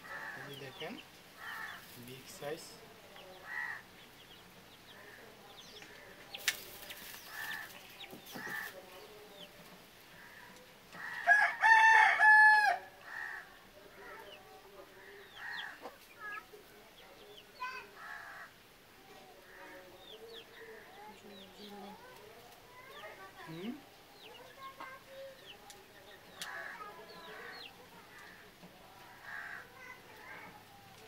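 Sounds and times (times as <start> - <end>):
rooster crowing: 11.0 - 13.5.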